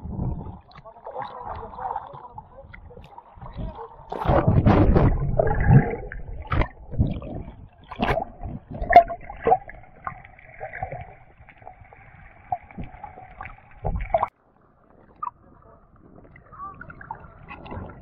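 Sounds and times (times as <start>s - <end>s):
muffled underwater bubbling: 0.0s - 14.3s
water splash: 0.0s - 14.3s.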